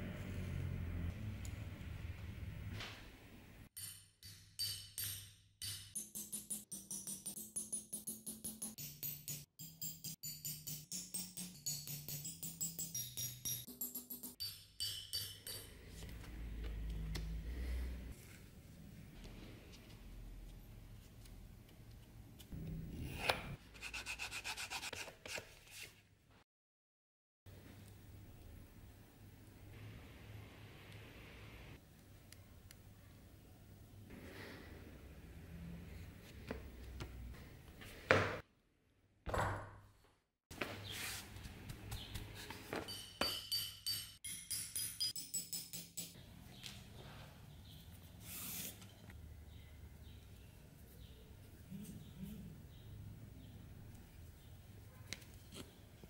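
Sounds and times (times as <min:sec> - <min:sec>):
hammer striking metal chisel: 0:03.8 - 0:16.1, 0:42.7 - 0:46.2.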